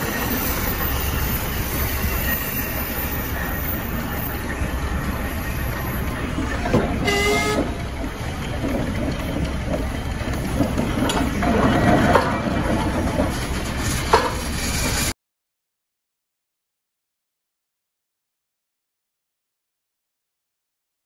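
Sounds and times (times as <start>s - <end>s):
steam machinery din: 0.0s - 15.1s
brief shrill tone: 7.0s - 7.7s.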